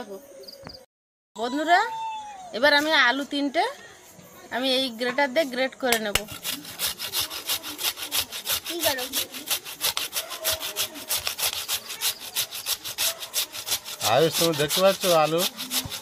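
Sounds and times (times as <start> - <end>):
potato grating on metal grater: 6.2 - 16.0.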